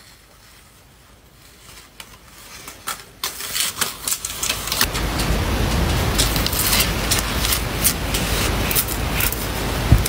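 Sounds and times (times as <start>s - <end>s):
sharp clicks and crackles: 2.0s - 10.0s.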